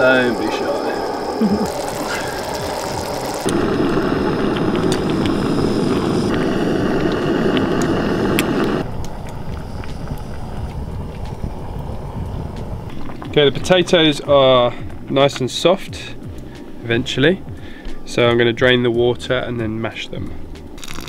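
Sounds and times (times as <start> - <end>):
gas stove burner running: 0.0 - 14.1
faint crackles: 0.1 - 16.9.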